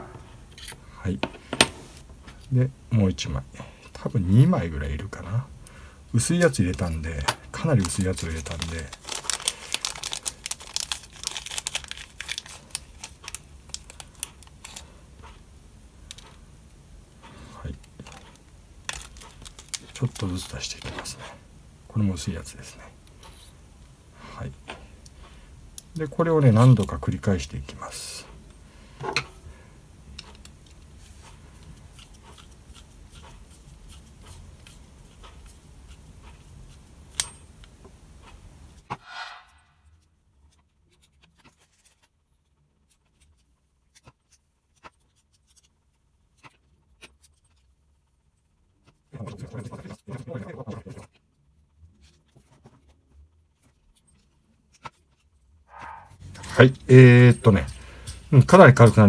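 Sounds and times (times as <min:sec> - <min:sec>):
plastic bag crinkling: 0:06.6 - 0:14.9, 0:18.9 - 0:20.7.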